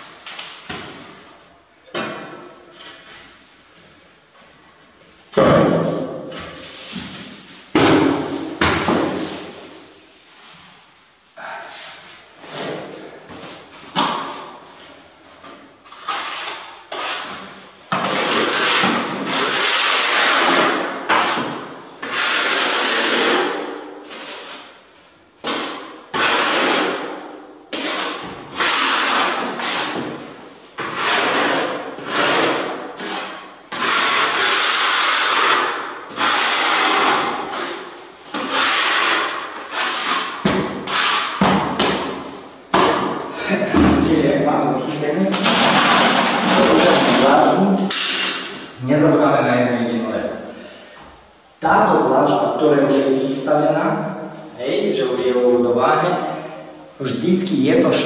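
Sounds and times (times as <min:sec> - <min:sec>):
trowel scraping adhesive: 0:15.9 - 0:23.5, 0:27.7 - 0:30.0, 0:30.8 - 0:41.9.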